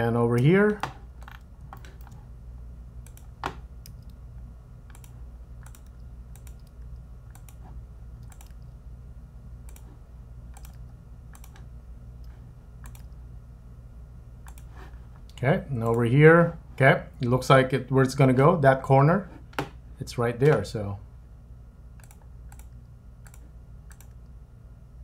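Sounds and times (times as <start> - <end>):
steady low hum: 0.0 - 25.0
computer mouse and keyboard clicks: 4.9 - 8.7, 10.6 - 11.6, 12.2 - 13.2, 22.0 - 24.2.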